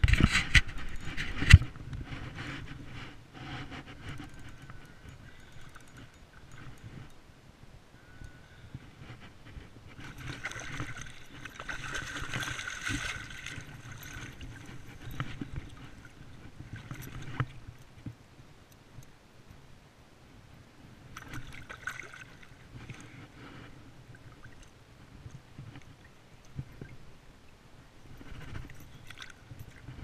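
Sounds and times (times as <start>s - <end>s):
water splashing from thrashing fish: 10.1s - 14.6s.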